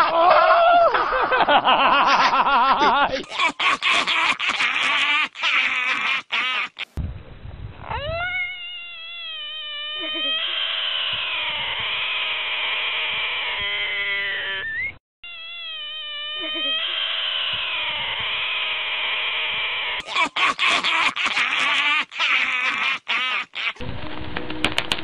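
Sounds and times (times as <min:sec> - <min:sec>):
frog screaming: 0:03.2 - 0:07.0, 0:07.8 - 0:23.8.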